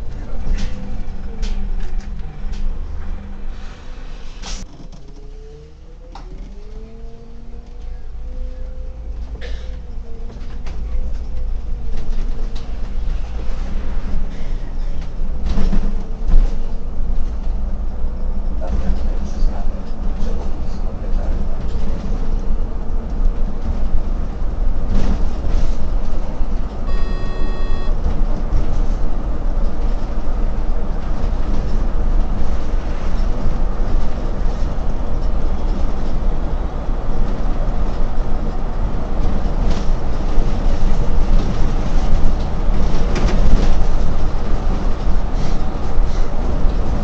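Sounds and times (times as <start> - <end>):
bus engine and road rumble: 0.0 - 47.0
short electronic beep: 26.9 - 28.0.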